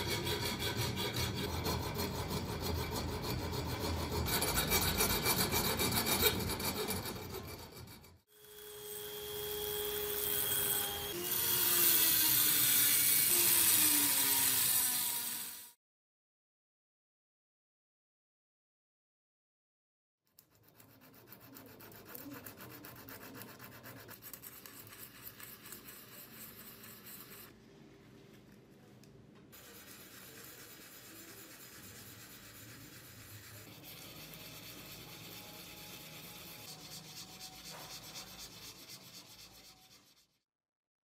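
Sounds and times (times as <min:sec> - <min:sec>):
sandpaper rubbing on steel: 0:00.0 - 0:08.1, 0:20.5 - 0:27.5, 0:29.6 - 0:40.4.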